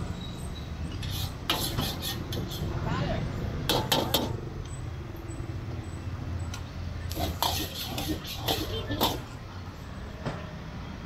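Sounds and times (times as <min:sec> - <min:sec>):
traffic hum: 0:00.0 - 0:11.0.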